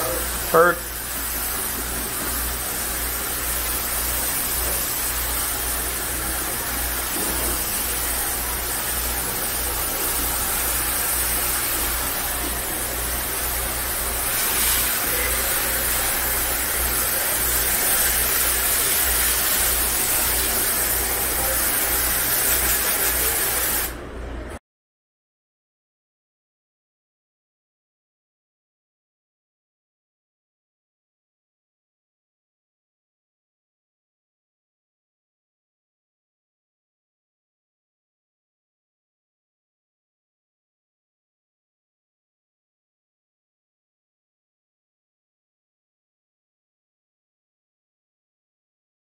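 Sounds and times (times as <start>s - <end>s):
water spray hissing: 0.0s - 24.0s.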